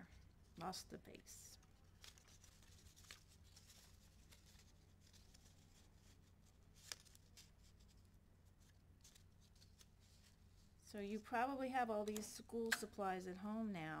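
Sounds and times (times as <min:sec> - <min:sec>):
low steady hum: 0:00.0 - 0:14.0
paper strips rustling and ticking: 0:00.1 - 0:10.6.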